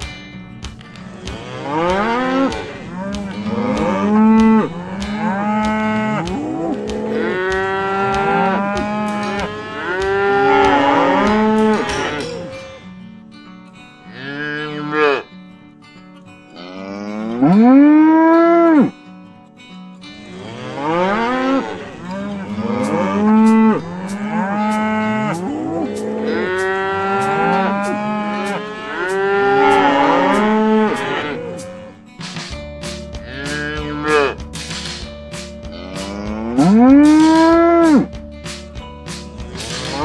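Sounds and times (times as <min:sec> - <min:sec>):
cows mooing: 0:01.1 - 0:12.8, 0:14.1 - 0:15.3, 0:16.6 - 0:19.0, 0:20.2 - 0:32.0, 0:33.2 - 0:34.4, 0:35.6 - 0:38.1.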